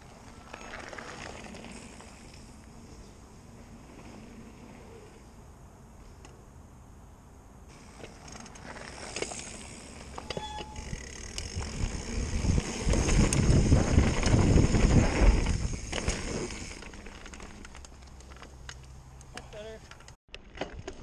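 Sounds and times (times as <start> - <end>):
bike tyres rolling on dirt: 0.0 - 6.2, 7.7 - 21.0
bike clicks and rattles: 0.1 - 2.7, 7.7 - 21.0.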